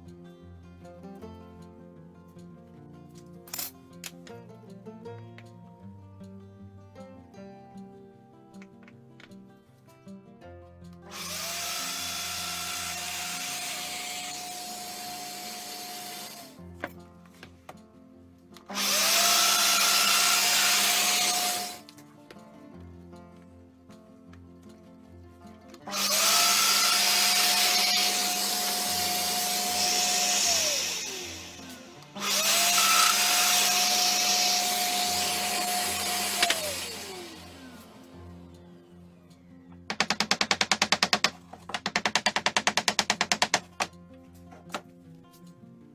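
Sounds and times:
domino joiner high whine: 18.7s - 21.8s, 25.9s - 38.0s.

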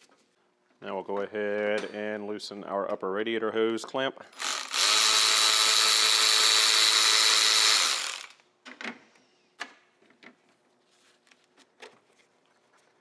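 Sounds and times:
electric ratchet spinning: 4.4s - 8.4s.

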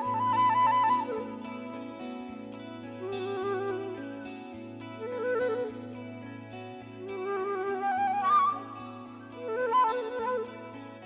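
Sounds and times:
flute melody: 0.0s - 1.8s, 3.0s - 4.2s, 5.0s - 6.0s, 7.0s - 10.8s.

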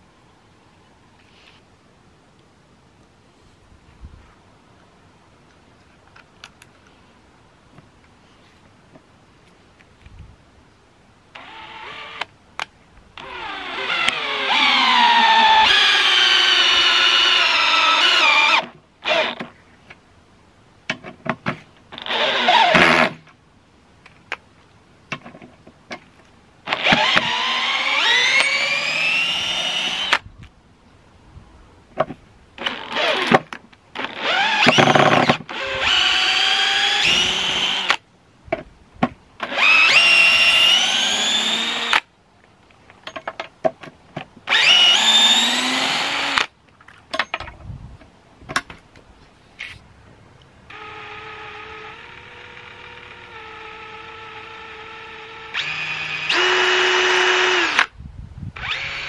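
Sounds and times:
drill motor whine: 11.4s - 12.3s, 13.2s - 19.4s, 26.7s - 30.2s, 34.0s - 38.0s, 39.5s - 42.0s, 44.5s - 46.5s, 50.7s - 57.9s, 58.6s - 59.0s.

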